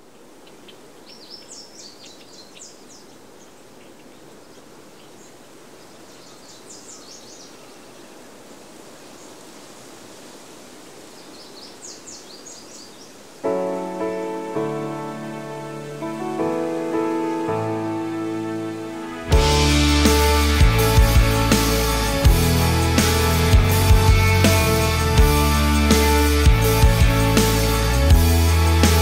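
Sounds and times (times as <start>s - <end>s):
small birds chirping: 0.0s - 8.4s, 11.0s - 13.4s
soft rushing hiss: 0.0s - 19.3s.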